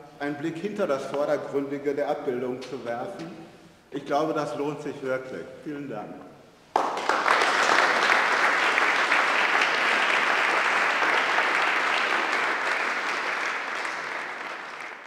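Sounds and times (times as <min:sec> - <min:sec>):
audience applauding: 0:06.7 - 0:15.0.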